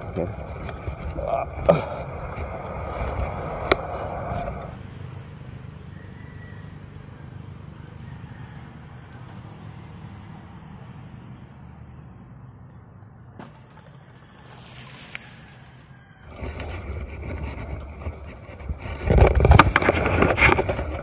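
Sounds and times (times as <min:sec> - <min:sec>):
low steady rumble: 0:00.0 - 0:08.0
bicycle rolling over leafy dirt path: 0:00.0 - 0:08.2, 0:13.4 - 0:21.0.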